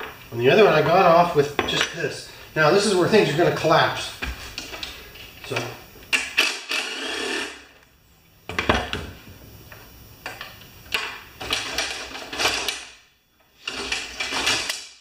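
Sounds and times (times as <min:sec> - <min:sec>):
metal parts clanking and rattling: 0:11.4 - 0:13.0, 0:13.6 - 0:15.0.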